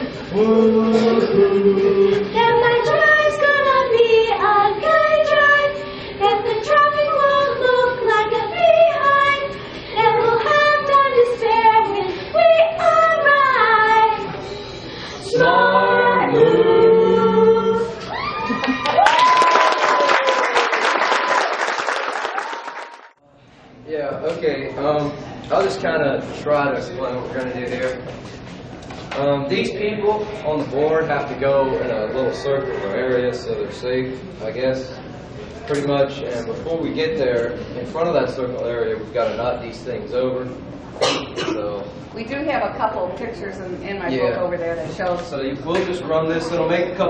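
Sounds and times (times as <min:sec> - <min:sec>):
children singing: 0:15.2 - 0:18.0
applause: 0:18.5 - 0:23.2.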